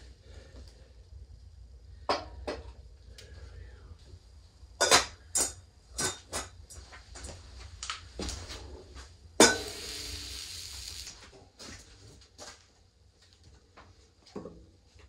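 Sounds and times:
metal clank on stove top: 0:09.4 - 0:09.9
hiss: 0:09.4 - 0:11.2.

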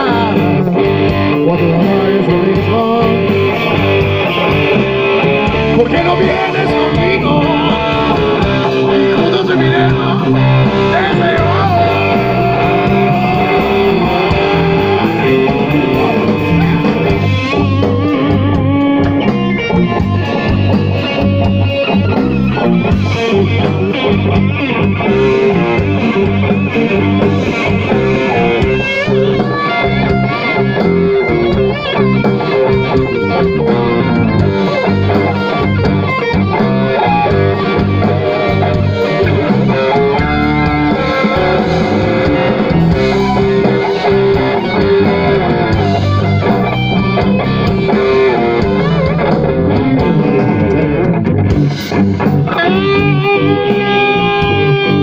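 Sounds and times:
electric guitar: 0:00.0 - 0:55.0
live blues band playing: 0:00.0 - 0:55.0.

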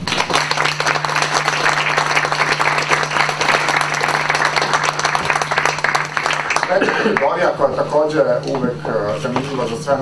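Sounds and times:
audience applauding: 0:00.0 - 0:07.4
steady low hum: 0:00.0 - 0:10.0.

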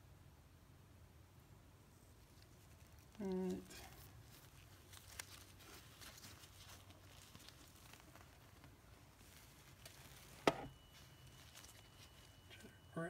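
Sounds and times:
handling taps and rustles: 0:03.7 - 0:12.7.

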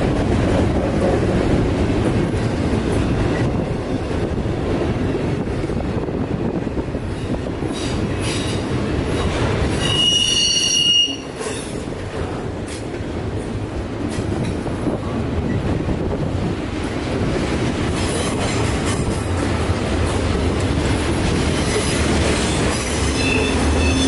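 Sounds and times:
train wheels rumbling on rail: 0:00.0 - 0:24.0
high wheel squeal: 0:09.8 - 0:11.7, 0:22.9 - 0:24.0.

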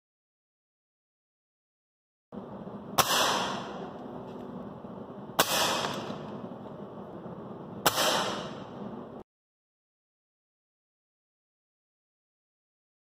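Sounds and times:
air rifle shots cracking: 0:02.9 - 0:04.0, 0:05.3 - 0:06.4, 0:07.8 - 0:08.9.

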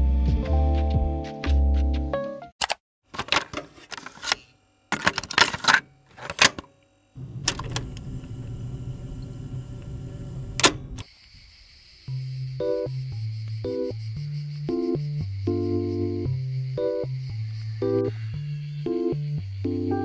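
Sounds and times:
music: 0:00.0 - 0:02.5, 0:12.1 - 0:20.0.

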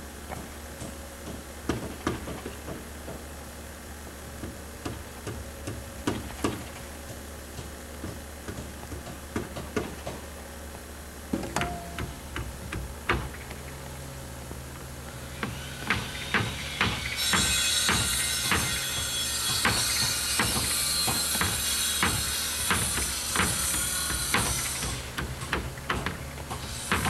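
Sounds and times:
steady low hum: 0:00.0 - 0:20.8.

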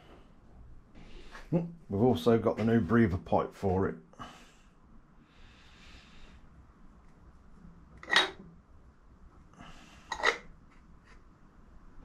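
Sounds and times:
faint rustling of parts: 0:09.2 - 0:11.4.

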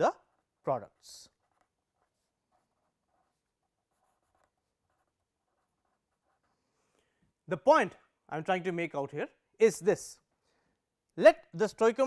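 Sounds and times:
felt-tip pen scratching paper: 0:00.2 - 0:06.7.

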